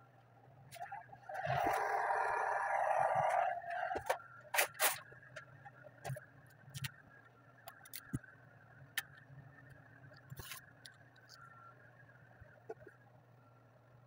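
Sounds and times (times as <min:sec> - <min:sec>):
steady low hum: 0:00.0 - 0:14.0
vinyl film ticking and scraping: 0:03.2 - 0:13.1.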